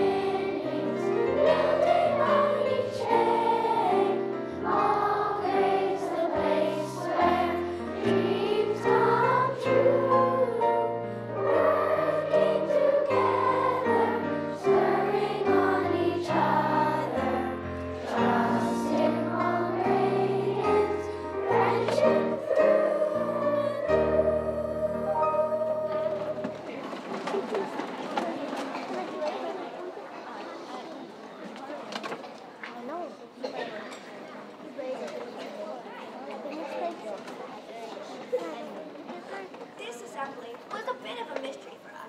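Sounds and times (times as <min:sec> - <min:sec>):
group of voices singing: 0:00.0 - 0:26.7
instrumental accompaniment: 0:00.0 - 0:26.8.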